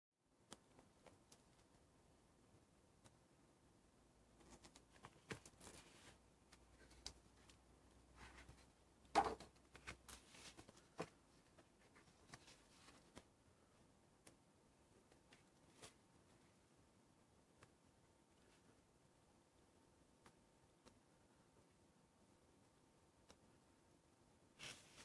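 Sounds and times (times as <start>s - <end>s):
paper rustling: 24.6s - 25.0s.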